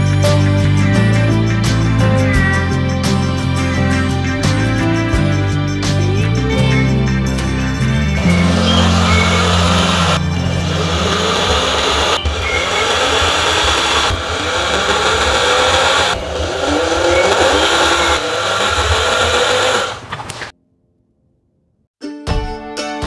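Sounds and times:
electric drill boring cardboard: 8.2s - 20.5s.

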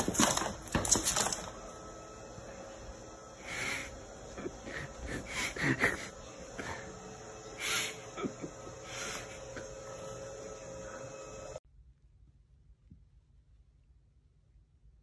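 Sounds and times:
steady hum: 0.0s - 11.6s.

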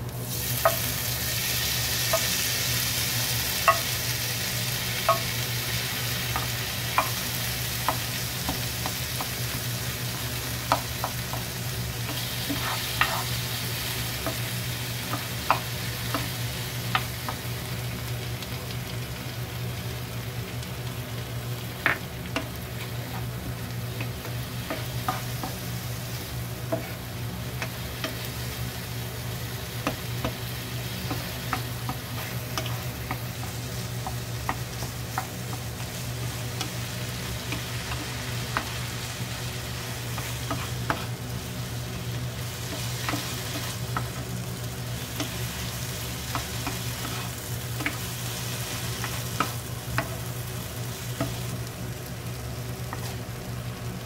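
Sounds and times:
food sizzling in frying pan: 0.0s - 54.0s
steady low hum: 0.0s - 54.0s
spatula scraping pan: 12.4s - 13.4s.

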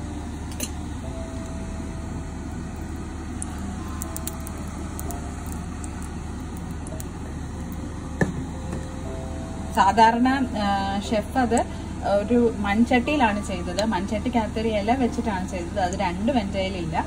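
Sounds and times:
low hum: 0.0s - 17.0s
oil crackling in hot pan: 2.6s - 8.0s.

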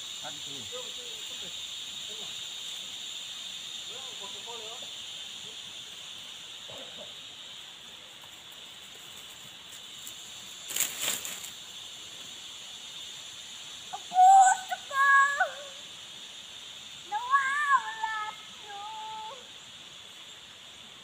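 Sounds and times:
forest insects droning: 0.0s - 21.0s
high wavering calls: 13.4s - 19.7s.

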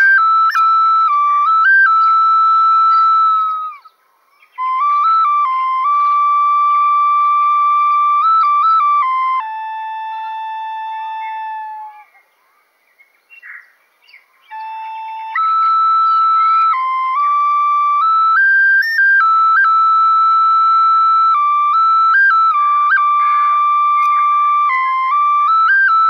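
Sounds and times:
flute-like slow melody: 0.0s - 12.2s, 14.5s - 26.0s.

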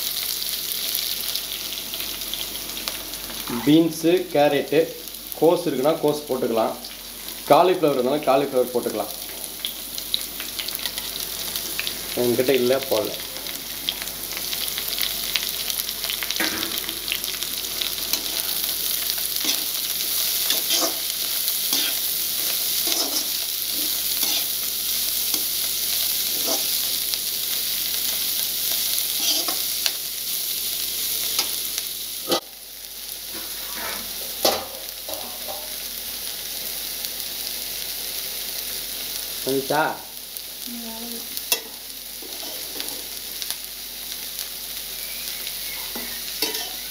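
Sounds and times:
vegetables sizzling in a pan: 0.0s - 46.9s
spatula scraping and tapping pan: 46.0s - 46.8s.

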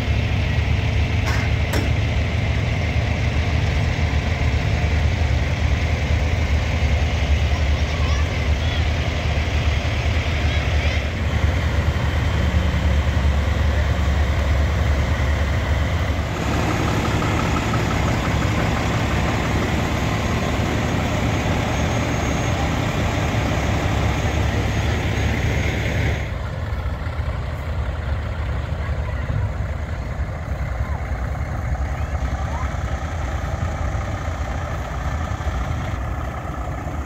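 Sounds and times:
diesel truck engines idling: 0.0s - 37.0s.

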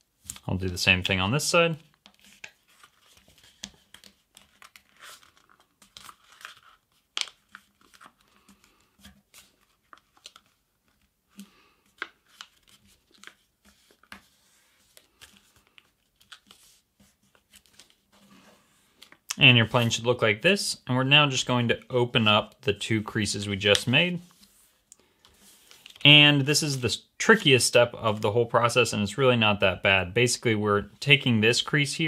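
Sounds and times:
paper being folded: 1.8s - 19.9s, 23.7s - 26.0s.

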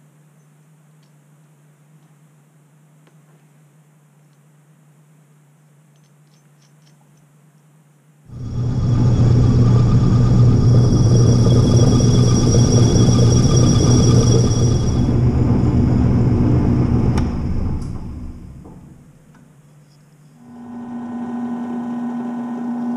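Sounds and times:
metal lathe motor humming and whining: 8.3s - 19.1s, 20.4s - 22.9s.

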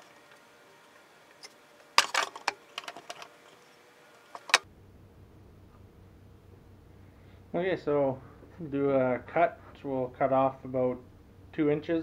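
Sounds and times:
handling clicks and knocks: 2.0s - 3.4s.

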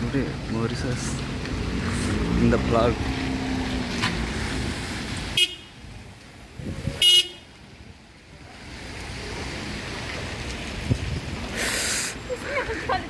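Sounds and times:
rain hiss: 0.0s - 13.0s
traffic: 0.0s - 13.0s
car horn toot: 5.4s - 5.8s, 7.0s - 7.5s.

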